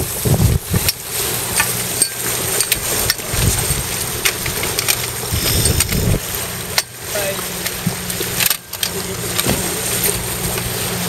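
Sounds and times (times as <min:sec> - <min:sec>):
wind buffeting microphone: 0:00.0 - 0:06.4
low steady hum: 0:00.0 - 0:11.0
water rushing past a boat: 0:00.0 - 0:11.0.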